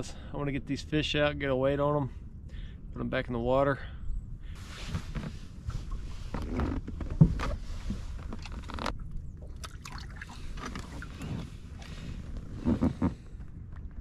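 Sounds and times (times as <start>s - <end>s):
knocks and scrapes on boat deck: 4.6s - 9.0s, 10.5s - 13.5s.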